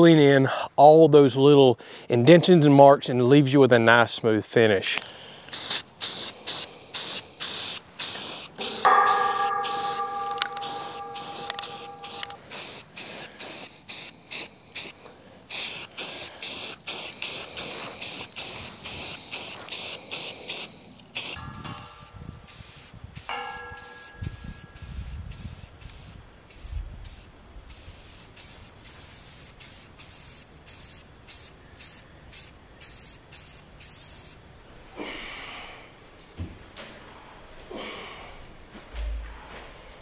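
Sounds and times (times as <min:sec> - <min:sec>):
aerosol spray can hissing: 0:05.5 - 0:09.9, 0:10.6 - 0:23.3, 0:24.0 - 0:34.4.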